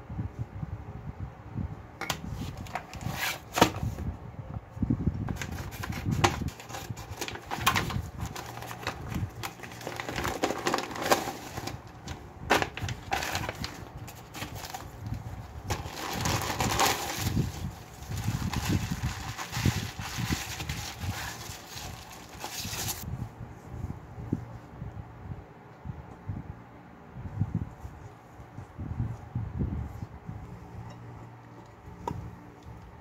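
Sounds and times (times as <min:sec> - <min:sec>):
plastic bag crinkling: 0:05.4 - 0:23.0.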